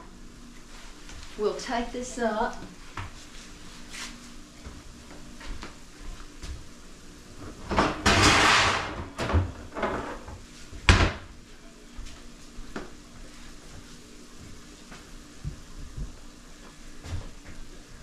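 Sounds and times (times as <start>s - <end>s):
metal clattering and scraping: 8.1s - 9.0s
cabinet door banging shut: 10.9s - 11.3s.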